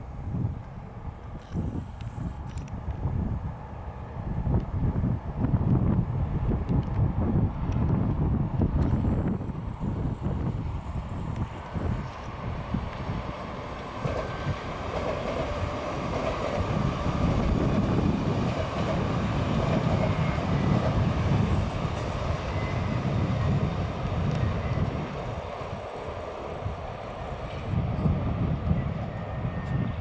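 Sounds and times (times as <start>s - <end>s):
train wheels rumbling on rails: 0.0s - 30.0s.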